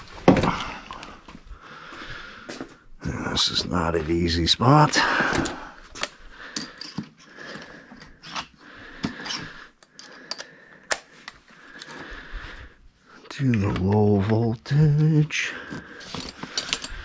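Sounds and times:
metal hand tools clinking: 0:06.5 - 0:08.5, 0:16.0 - 0:17.0
tool bag rustling: 0:15.6 - 0:17.0.

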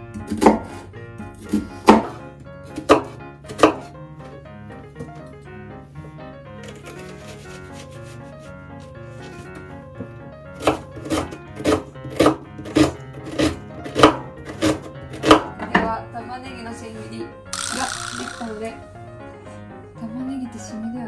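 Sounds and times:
knife chopping on wooden board: 0:00.1 - 0:04.0, 0:10.6 - 0:15.7.

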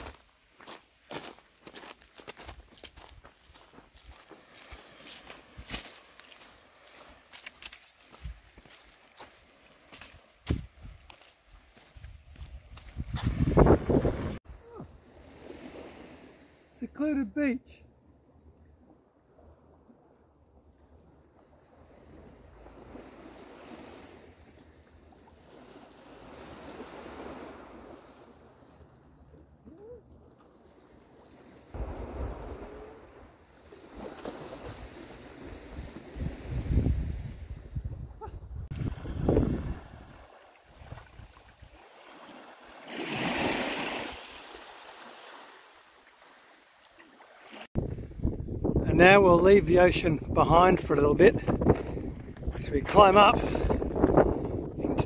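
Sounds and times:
waves washing on sand: 0:03.5 - 0:10.8, 0:21.9 - 0:28.9, 0:30.8 - 0:37.5, 0:38.7 - 0:47.7.

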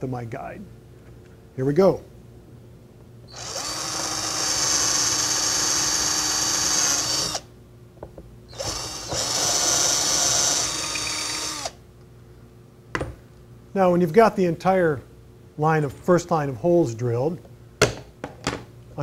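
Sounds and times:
cordless drill boring wood: 0:03.3 - 0:07.5, 0:08.5 - 0:11.8.

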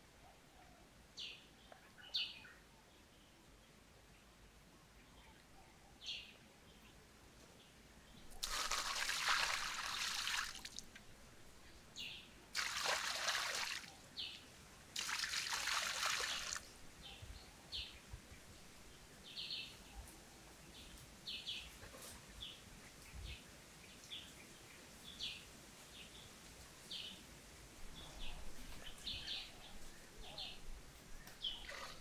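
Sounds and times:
water pouring into a pond: 0:08.3 - 0:11.0, 0:12.5 - 0:14.3, 0:15.0 - 0:16.7, 0:31.6 - 0:32.0.

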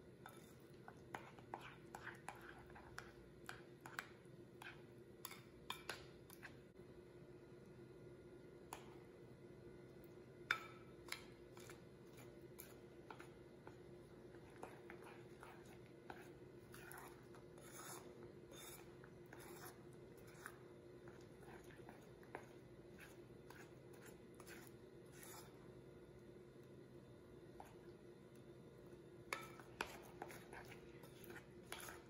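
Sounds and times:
faint steady hum: 0:00.0 - 0:32.0
spoon scraping glass bowl: 0:00.2 - 0:03.0, 0:14.5 - 0:21.8, 0:22.4 - 0:25.6, 0:29.3 - 0:32.0.

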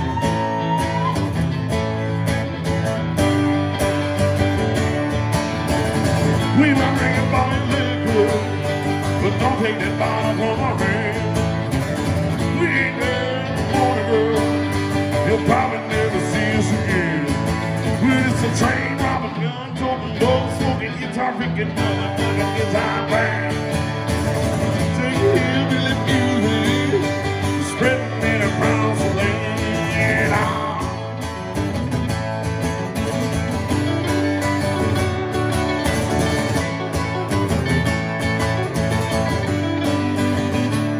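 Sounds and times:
acoustic guitar picking lead lines: 0:00.0 - 0:40.9
acoustic guitar strumming chords: 0:00.0 - 0:40.9.

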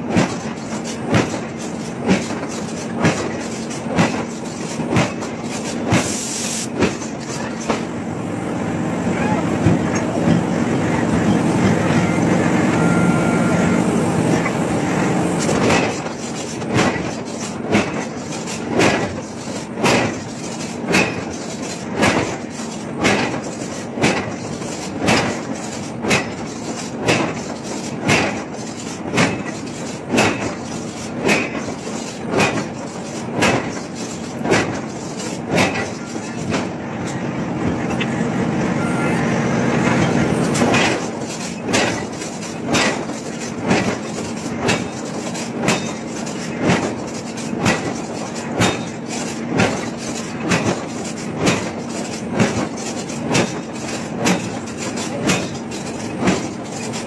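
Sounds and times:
machinery humming: 0:00.0 - 0:57.0
metallic clanks: 0:14.3 - 0:38.2, 0:39.8 - 0:57.0.

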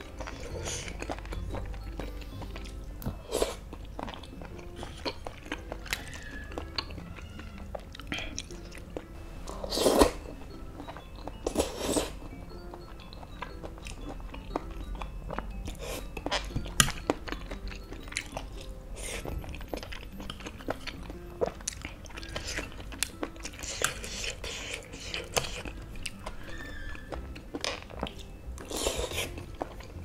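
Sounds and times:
chewing food: 0:00.0 - 0:30.0
noodle slurp: 0:09.5 - 0:10.2, 0:28.7 - 0:29.4
wet mouth clicks: 0:21.4 - 0:26.2.

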